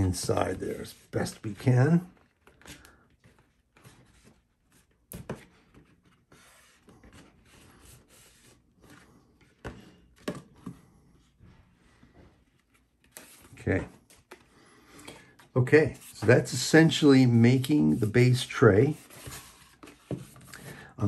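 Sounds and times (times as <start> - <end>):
wrapping paper rubbing and scraping: 15.8 - 20.6.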